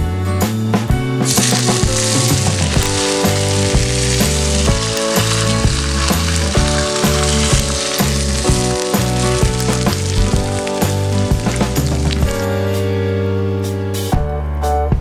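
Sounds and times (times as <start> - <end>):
background music: 0.8 - 15.0
hot oil sizzling: 1.2 - 12.7.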